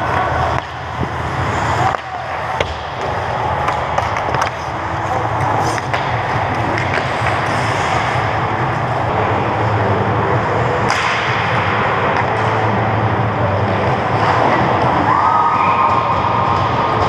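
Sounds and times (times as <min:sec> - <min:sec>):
hockey sticks hitting puck: 0:00.0 - 0:09.6, 0:10.5 - 0:12.9, 0:13.6 - 0:17.0
skates scraping ice: 0:00.0 - 0:17.0
sharp crack: 0:10.9 - 0:12.3.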